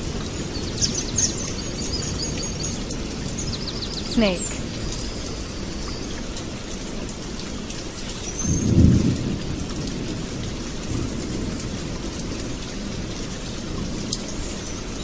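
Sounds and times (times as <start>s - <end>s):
steady rain: 0.0s - 15.0s
thunder rumbling: 8.4s - 14.1s.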